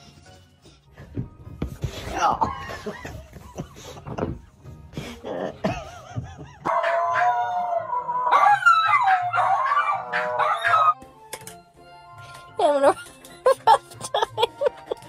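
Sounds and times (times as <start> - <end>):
dog howling and yipping: 6.6 - 11.0.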